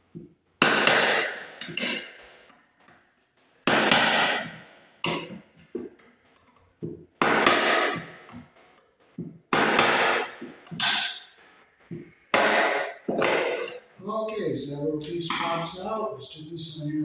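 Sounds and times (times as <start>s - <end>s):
hammer striking screwdriver: 1.6s - 2.2s.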